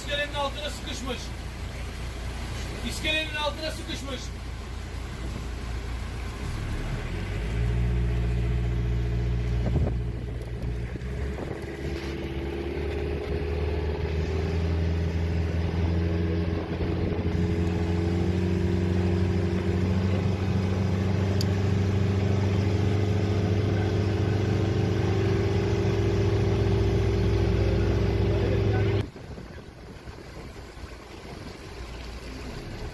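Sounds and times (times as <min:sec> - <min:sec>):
boat engine running: 0:00.0 - 0:32.9.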